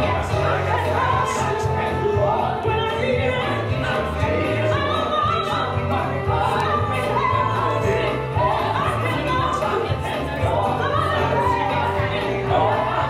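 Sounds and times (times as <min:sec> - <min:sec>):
worship music over speakers: 0:00.0 - 0:13.0.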